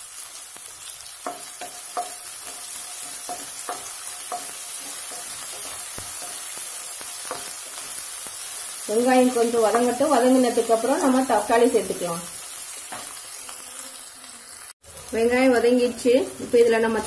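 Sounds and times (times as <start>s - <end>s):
onions sizzling in hot oil: 0.0s - 17.0s
wooden spatula tapping and scraping: 1.2s - 8.0s, 9.4s - 10.2s.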